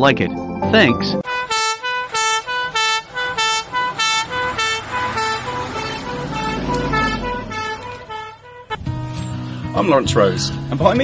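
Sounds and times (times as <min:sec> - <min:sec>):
diesel engine rumble: 0:01.2 - 0:09.8
two-tone fire engine siren: 0:01.3 - 0:08.9.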